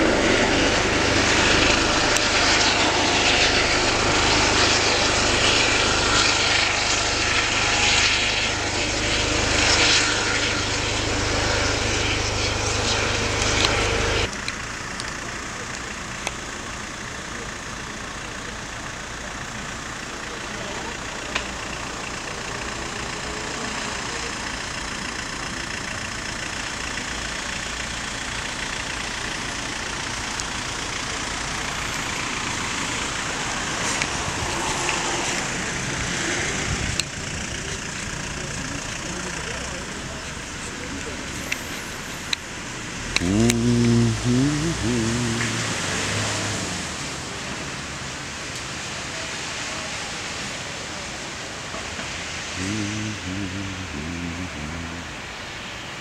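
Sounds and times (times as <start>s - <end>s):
helicopter rotor and engine: 0.0s - 44.2s
road traffic and street noise: 0.0s - 56.0s.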